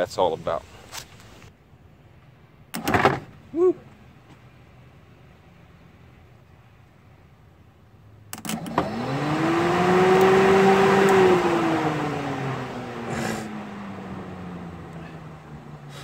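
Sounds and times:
fan motor whine: 0:08.3 - 0:16.0.

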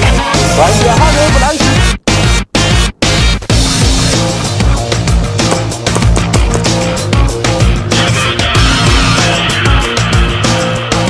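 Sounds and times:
aggressive music: 0:00.0 - 0:11.0
pounding drum beat: 0:05.4 - 0:07.0.

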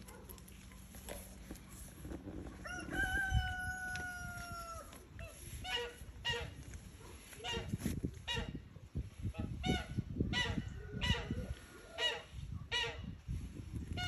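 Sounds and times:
rooster crowing: 0:02.6 - 0:05.0
fowl calls: 0:02.7 - 0:06.7, 0:07.4 - 0:08.6, 0:09.4 - 0:13.2.

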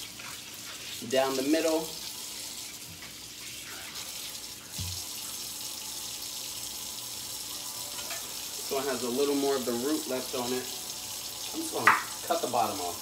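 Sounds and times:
faucet running water: 0:00.0 - 0:13.0.

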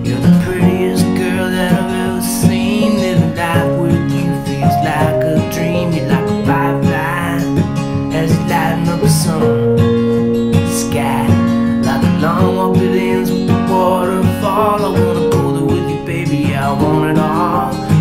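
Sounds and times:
acoustic guitar strumming: 0:00.0 - 0:18.0
electric keyboard chords: 0:00.0 - 0:18.0
wavering melody line: 0:04.5 - 0:06.8, 0:14.6 - 0:17.9.

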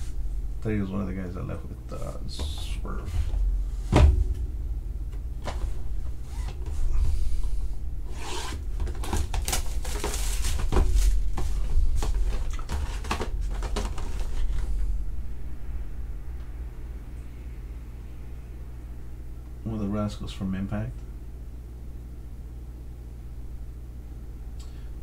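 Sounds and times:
cardboard cards clicking and rustling: 0:08.8 - 0:14.3.

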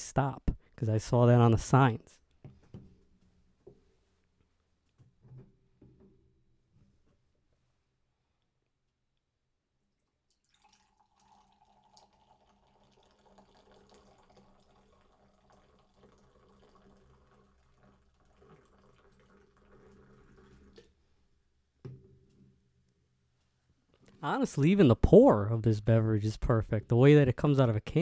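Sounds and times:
liquid pouring into glass: 0:10.0 - 0:20.9.

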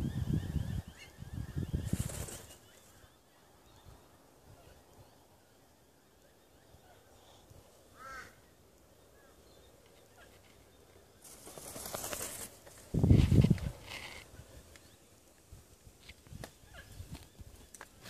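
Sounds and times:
low buffeting on microphone: 0:12.9 - 0:14.6.

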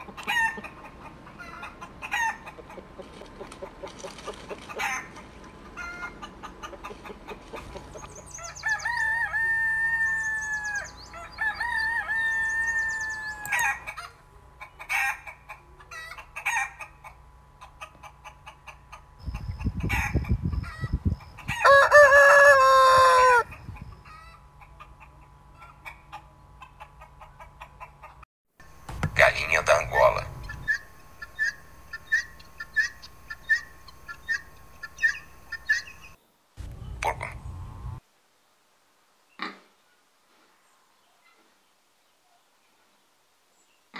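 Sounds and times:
chickens clucking: 0:00.0 - 0:38.0
rooster crowing: 0:08.3 - 0:14.0, 0:21.5 - 0:23.5
low thumps: 0:28.7 - 0:30.8, 0:36.6 - 0:38.0.

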